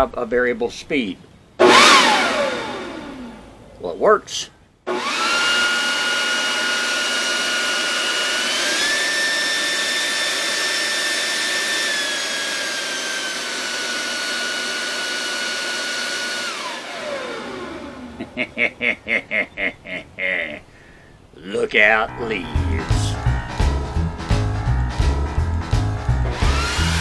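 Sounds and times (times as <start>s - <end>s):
electric leaf blower whining: 1.6s - 3.6s, 4.9s - 18.4s, 26.1s - 27.0s.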